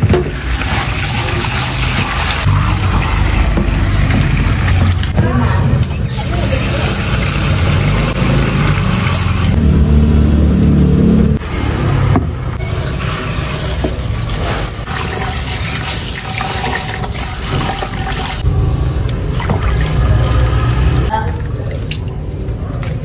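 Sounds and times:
water splashing over leaves: 0.0 - 5.2, 13.3 - 23.0.

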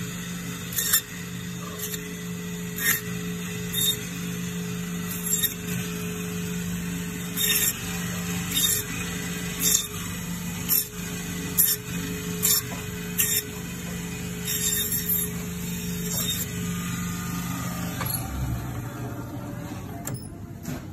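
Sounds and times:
bandsaw blade cutting bone: 0.7 - 2.0, 2.7 - 4.2, 5.1 - 5.8, 7.2 - 16.8
bandsaw humming: 7.0 - 20.9.

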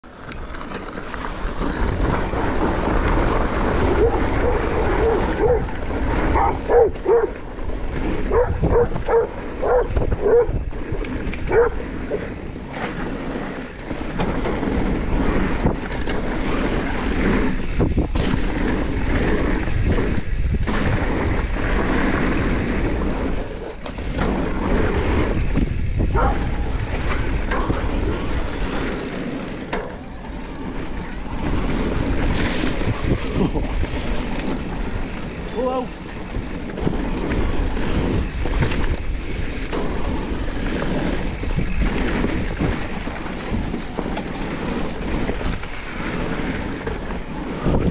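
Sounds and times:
bike tyres rushing and rattling: 0.0 - 47.9
wind on microphone: 1.4 - 47.9.

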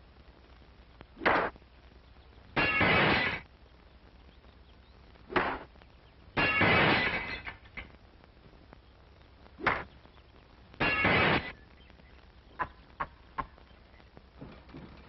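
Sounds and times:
window glass shattering: 2.6 - 3.4, 6.4 - 7.9, 10.8 - 11.5.

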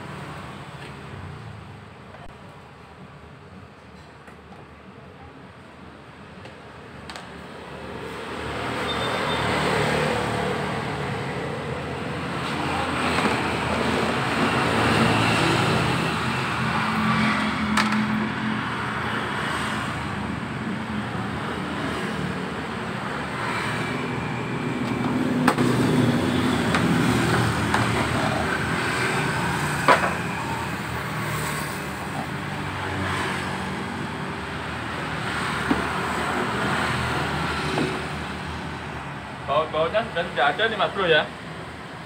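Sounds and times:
vehicle engine and road noise: 0.0 - 42.0.

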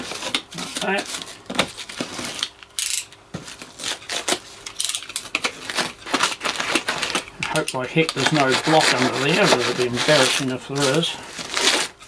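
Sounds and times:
blade scraping and cracking plaster: 5.4 - 12.0.

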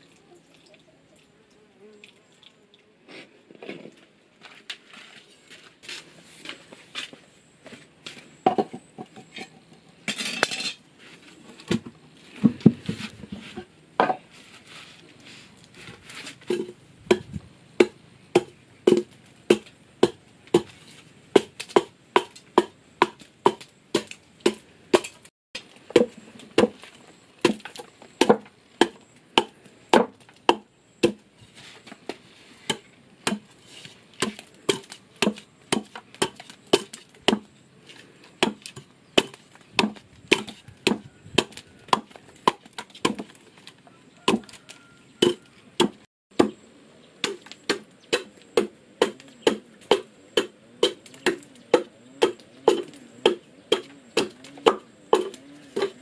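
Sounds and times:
blade chopping into wood: 16.5 - 31.2, 32.6 - 33.6, 34.2 - 37.5, 38.4 - 43.4, 47.2 - 56.0.

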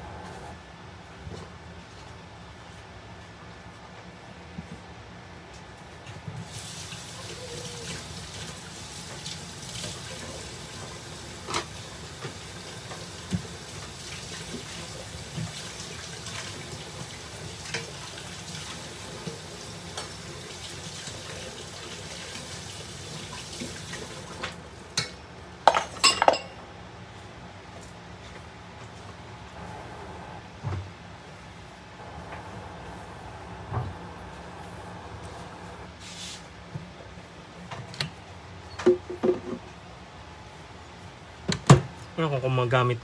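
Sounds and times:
pot and utensils clattering: 25.0 - 26.6.

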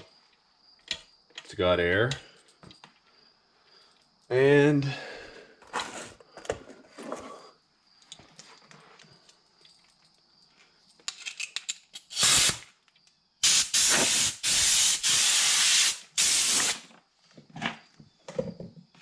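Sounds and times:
compressed air blasts: 12.1 - 12.7, 13.4 - 16.9.

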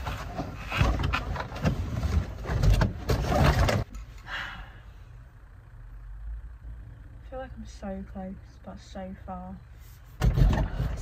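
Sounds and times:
plastic dashboard parts rattling: 0.0 - 4.0, 10.2 - 11.0.

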